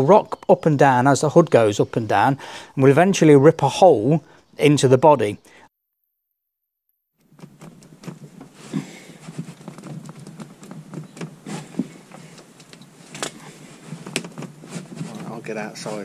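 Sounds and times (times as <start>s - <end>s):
light knocks and creaks: 7.4s - 16.0s
rustling soft-top fabric: 7.6s - 16.0s.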